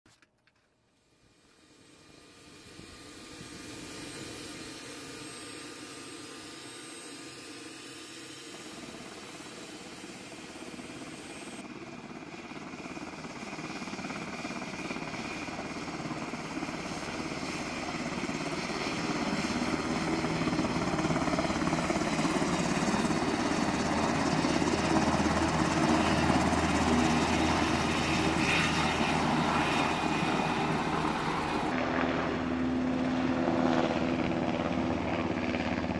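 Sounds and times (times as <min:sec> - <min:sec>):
helicopter turbine whine: 0:00.8 - 0:35.9
helicopter rotor noise: 0:01.0 - 0:35.9.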